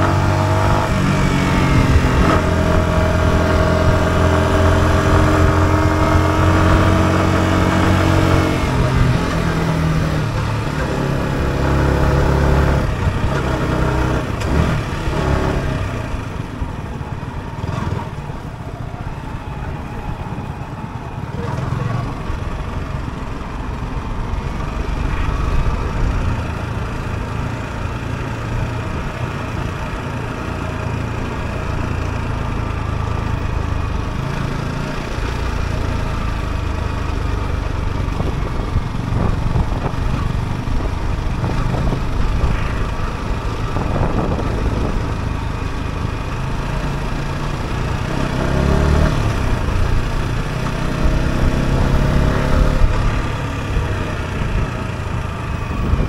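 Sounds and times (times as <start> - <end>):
motorcycle engine running: 0.0 - 18.5, 21.4 - 56.0.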